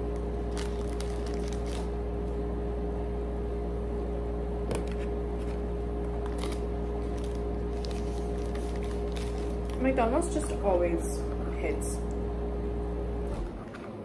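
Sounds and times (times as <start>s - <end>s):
low mechanical hum: 0.0s - 14.0s
paper packaging rustling: 0.4s - 1.9s, 6.2s - 10.5s.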